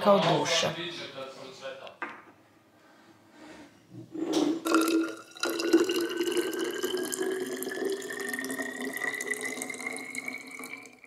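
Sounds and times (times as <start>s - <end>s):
water pouring into a bottle: 4.6s - 11.0s.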